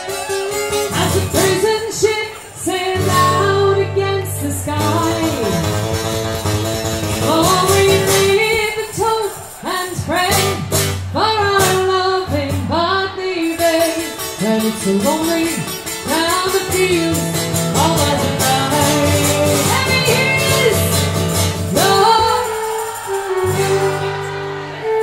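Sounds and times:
strummed acoustic guitar: 0.0 - 25.0
folk band playing a slow ballad: 3.0 - 8.4, 13.6 - 25.0.

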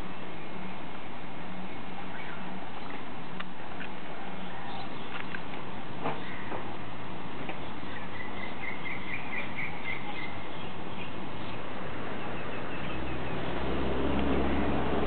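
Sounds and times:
low motor hum: 0.0 - 15.0
bird chirping: 4.4 - 5.4, 7.6 - 13.6.

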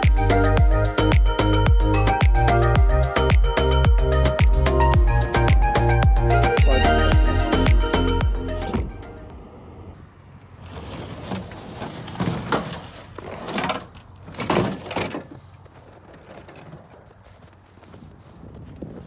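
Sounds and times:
dolly scraping and knocking: 10.6 - 17.5.

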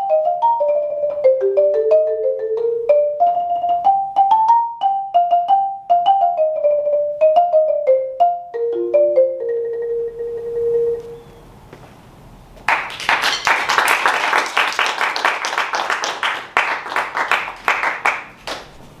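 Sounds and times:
marimba note ringing: 0.0 - 11.2
applause: 12.7 - 18.8.

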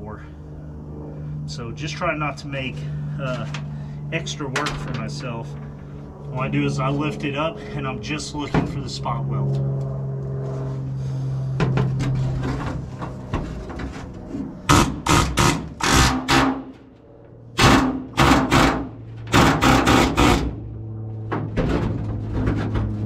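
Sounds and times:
steady low hum: 0.0 - 23.0
pneumatic air hammer on steel: 14.7 - 16.6, 17.6 - 20.5.

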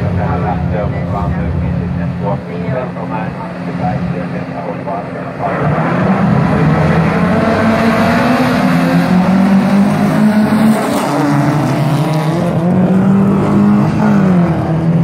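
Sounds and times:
race car engines revving: 0.0 - 15.0.

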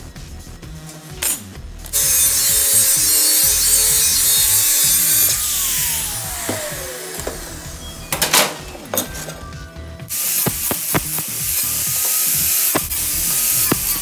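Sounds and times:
angle grinder cutting steel: 1.9 - 8.0, 10.1 - 14.0
grinder motor spinning down: 2.0 - 8.1.

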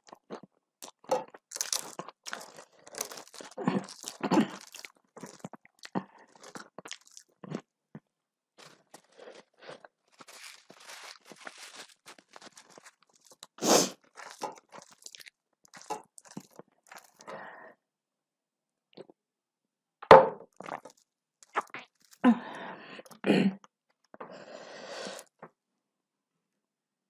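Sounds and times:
person chewing and crunching food: 0.0 - 17.5, 20.5 - 23.2, 25.0 - 25.4.

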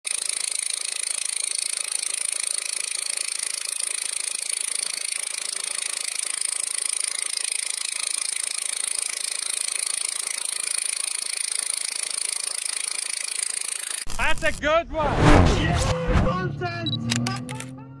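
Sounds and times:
engraving machine buzzing: 0.0 - 14.2.

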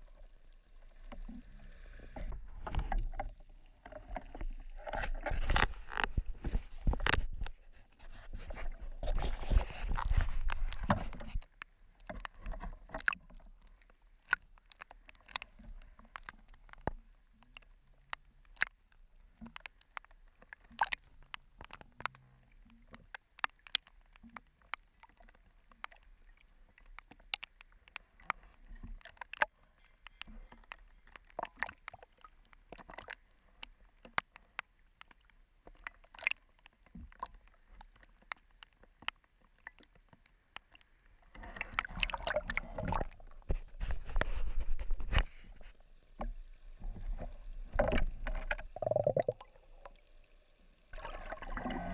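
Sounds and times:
water ticking against camera housing: 2.2 - 51.7
water rushing and splashing: 50.9 - 51.9.

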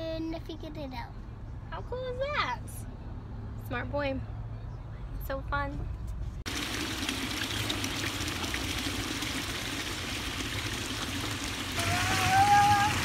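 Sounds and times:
fountain water splashing into trough: 6.5 - 13.0.

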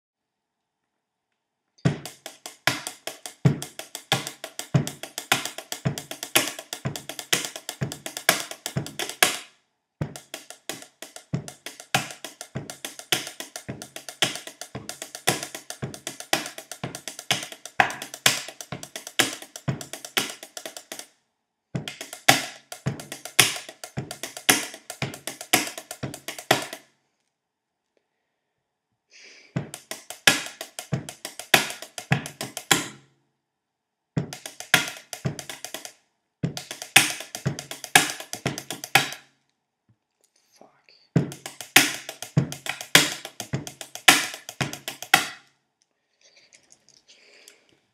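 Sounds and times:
pens tapping on a wooden table: 1.9 - 21.1, 21.8 - 26.8, 29.6 - 33.0, 34.2 - 35.9, 36.5 - 39.2, 41.2 - 45.4.

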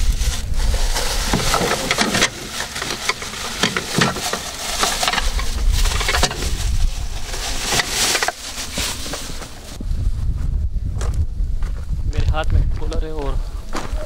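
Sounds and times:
wind rumble on microphone: 0.0 - 3.8, 4.6 - 14.0
plastic bags crinkling: 0.0 - 9.8.

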